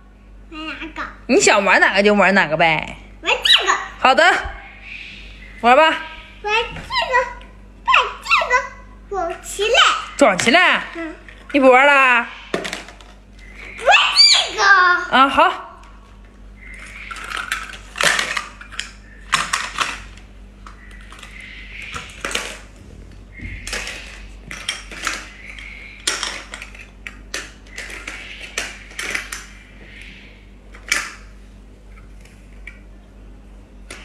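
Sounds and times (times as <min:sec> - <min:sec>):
toy pieces clattering into basket: 0:16.8 - 0:20.2, 0:22.0 - 0:22.7, 0:23.7 - 0:29.5.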